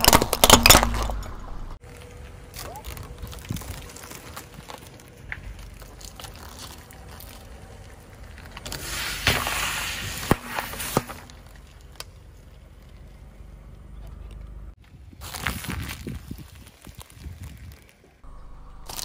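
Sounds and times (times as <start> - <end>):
bottles bursting with sharp cracks: 0.0 - 1.8, 9.1 - 11.3.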